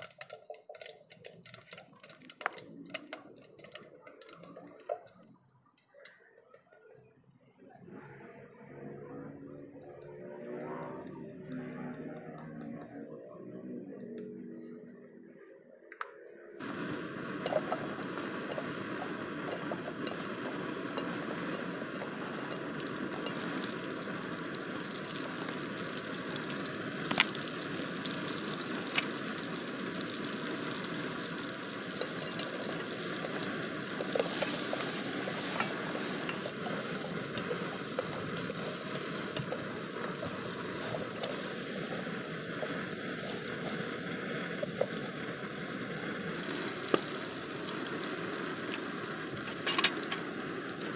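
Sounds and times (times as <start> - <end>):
onions sizzling in hot oil: 0.0 - 5.9, 16.6 - 50.9.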